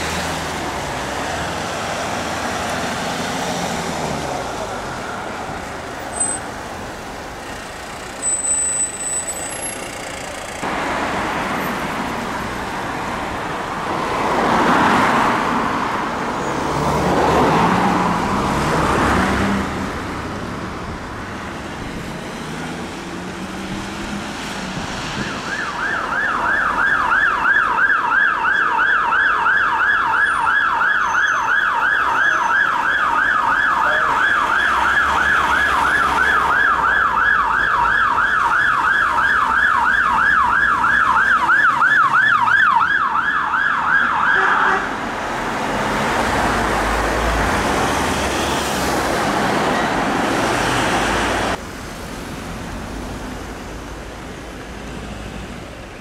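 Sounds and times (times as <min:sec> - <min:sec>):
road traffic noise: 0:00.0 - 0:56.0
police siren yelping: 0:25.1 - 0:44.8.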